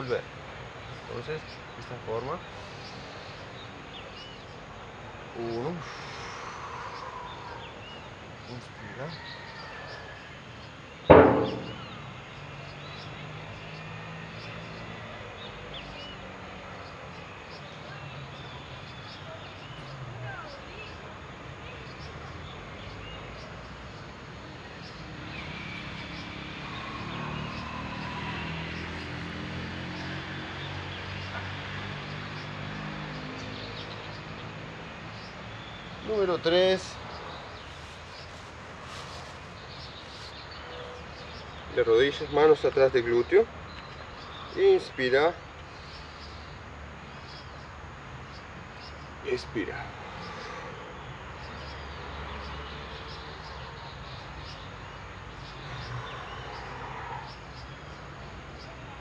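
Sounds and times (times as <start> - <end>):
insects chirping: 0.0 - 59.0
distant engine humming: 11.1 - 12.6.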